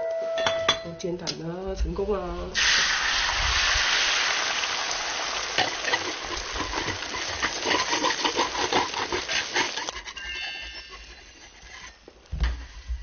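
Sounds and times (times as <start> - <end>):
egg sizzling in hot oil: 2.6 - 12.0.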